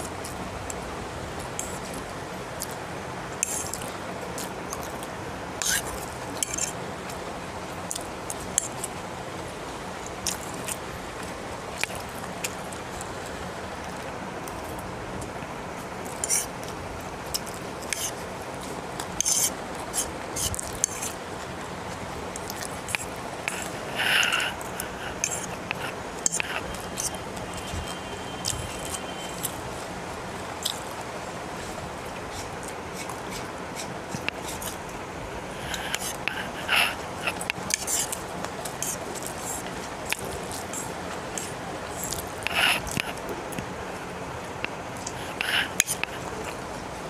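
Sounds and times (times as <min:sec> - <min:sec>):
steady background hiss: 0:00.0 - 0:47.0
mouth sounds eating noodles: 0:16.0 - 0:29.9, 0:30.6 - 0:31.0, 0:35.5 - 0:43.8, 0:44.6 - 0:46.7.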